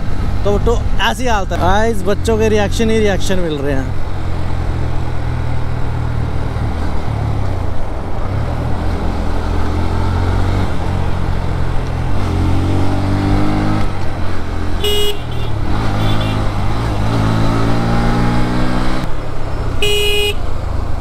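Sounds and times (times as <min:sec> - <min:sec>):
motorcycle engine running: 0:14.0 - 0:17.7
vehicle horn toot: 0:14.8 - 0:16.5, 0:19.8 - 0:20.4.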